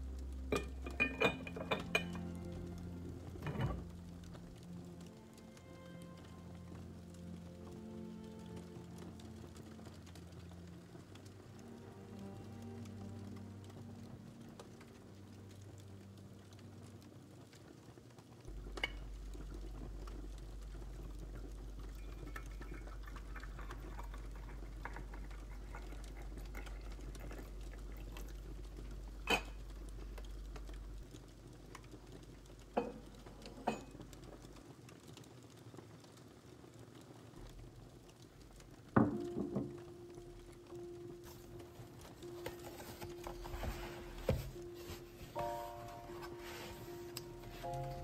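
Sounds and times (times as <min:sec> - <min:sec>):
small objects knocking on a desk: 0:39.0 - 0:39.8.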